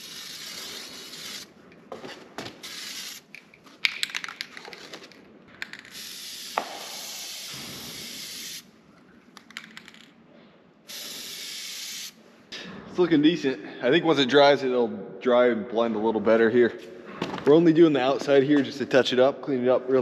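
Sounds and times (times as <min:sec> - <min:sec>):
spray can hissing: 0:00.0 - 0:01.5, 0:02.6 - 0:03.4, 0:05.7 - 0:08.7, 0:10.9 - 0:12.2
spray can rattling clicks: 0:02.6 - 0:08.6, 0:09.4 - 0:10.1.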